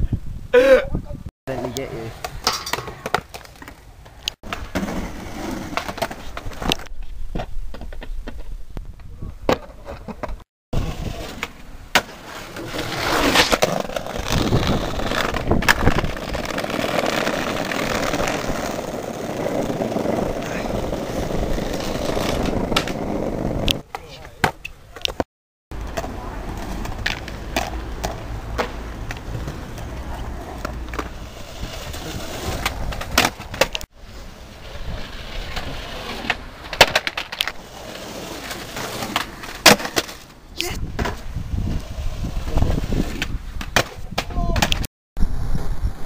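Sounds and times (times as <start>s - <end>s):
skateboard wheels rolling on bricks: 1.6s - 46.0s
skateboard clacks: 25.8s - 31.2s.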